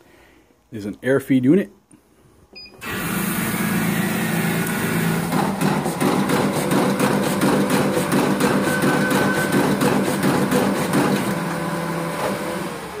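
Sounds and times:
card cutter motor humming: 0:02.8 - 0:13.0
rapid clicking of sheets cut: 0:04.6 - 0:11.6.

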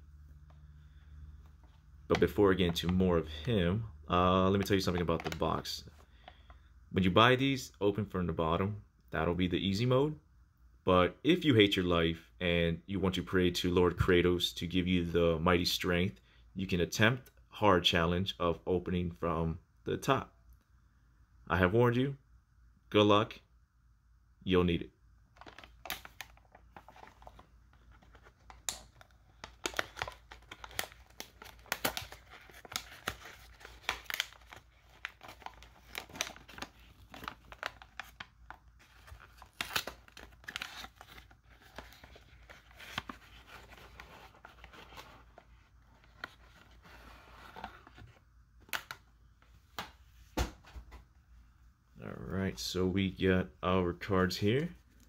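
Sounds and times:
cardboard tearing and crinkling: 0:29.4 - 0:38.2, 0:38.8 - 0:45.4.

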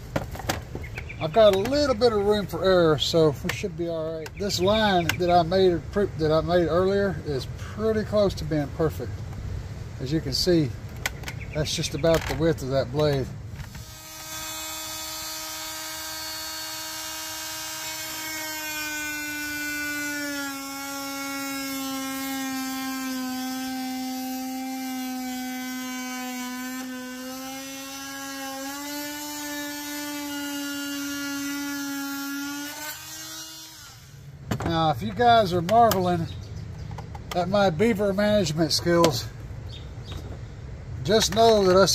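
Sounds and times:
rotary tool cutting plastic: 0:13.0 - 0:34.2.

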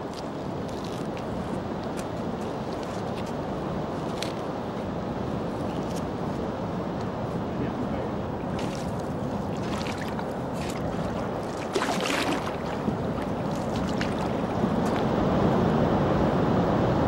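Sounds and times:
rushing water: 0:00.0 - 0:17.0
wind: 0:00.0 - 0:17.0
paddle strokes splashing: 0:08.4 - 0:15.3.

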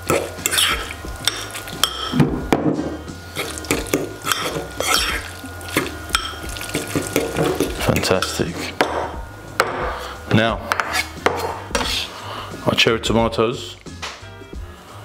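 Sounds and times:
utensil stirring in a bowl: 0:00.0 - 0:02.2, 0:03.2 - 0:08.8
clinks and scrapes against bowl: 0:00.1 - 0:02.2, 0:03.4 - 0:08.8, 0:10.7 - 0:12.0.

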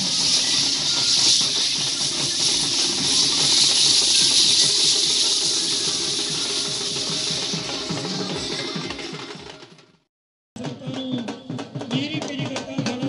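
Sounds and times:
loud steady hiss: 0:00.0 - 0:09.3.

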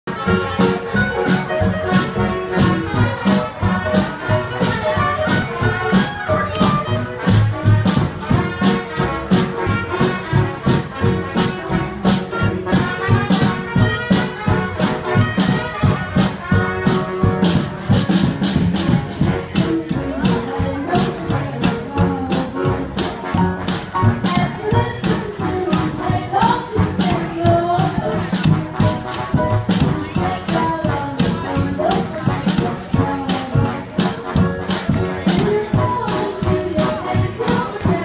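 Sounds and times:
brass horns playing: 0:00.1 - 0:38.0
drum beat: 0:00.1 - 0:38.0.

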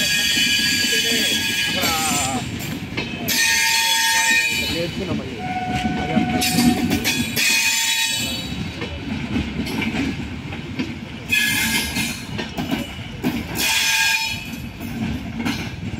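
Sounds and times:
train wheels rumbling on rail: 0:00.0 - 0:15.9.

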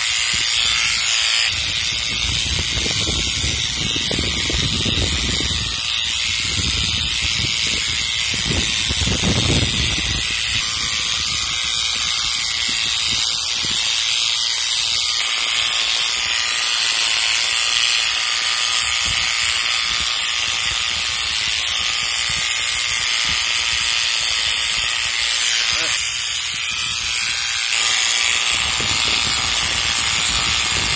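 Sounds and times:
electric hair clipper running: 0:00.0 - 0:30.9.

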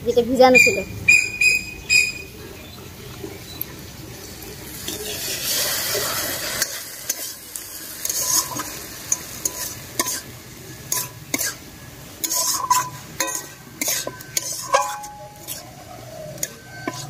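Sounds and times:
batter worked by hand in bowl: 0:04.0 - 0:17.0
batter pouring into wok: 0:04.2 - 0:11.6.

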